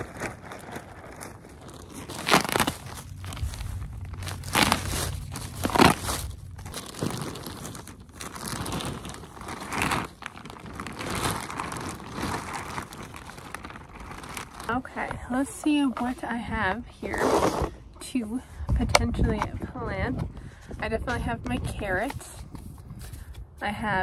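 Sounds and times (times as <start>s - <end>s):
soil sliding: 0.0s - 15.1s
plastic bag crinkling: 0.0s - 16.2s.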